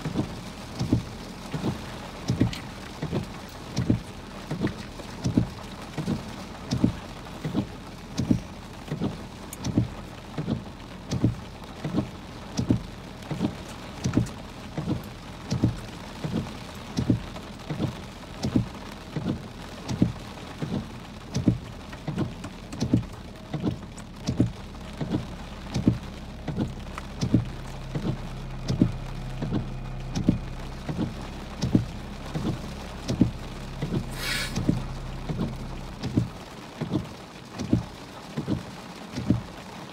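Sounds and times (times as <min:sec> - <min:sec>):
heavy rain on a car: 0:00.0 - 0:39.9
windshield wipers thumping: 0:00.0 - 0:39.9
low steady hum: 0:22.6 - 0:37.0
brief hiss: 0:34.1 - 0:34.8.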